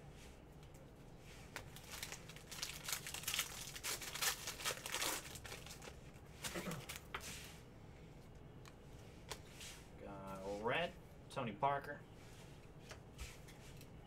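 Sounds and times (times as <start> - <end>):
cards rustling: 1.4 - 7.3
foil wrapper crinkling and tearing: 1.6 - 7.1.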